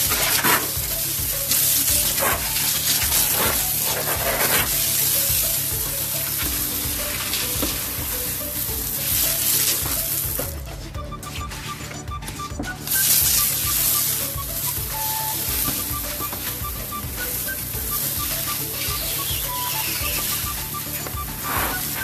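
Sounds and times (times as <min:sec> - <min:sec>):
hose spraying onto tiles: 0:00.0 - 0:10.8, 0:12.8 - 0:22.0.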